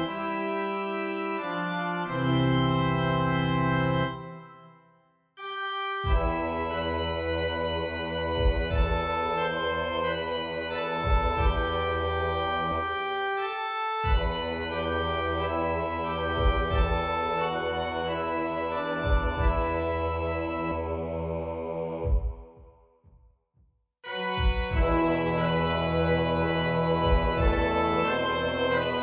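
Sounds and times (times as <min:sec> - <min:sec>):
organ playing slow chords: 0:00.0 - 0:04.8, 0:05.4 - 0:22.2, 0:24.0 - 0:29.0
paired low thuds: 0:06.1 - 0:06.6, 0:08.3 - 0:09.3, 0:14.0 - 0:14.7, 0:16.4 - 0:17.4.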